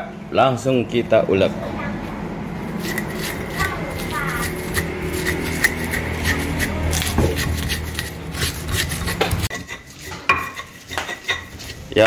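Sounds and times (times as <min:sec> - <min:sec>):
stone pestle scraping in mortar: 0:02.7 - 0:12.0.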